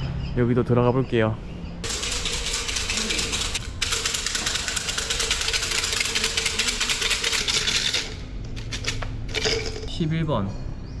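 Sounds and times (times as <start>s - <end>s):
fortune sticks rattling in cylinder: 1.8s - 10.0s.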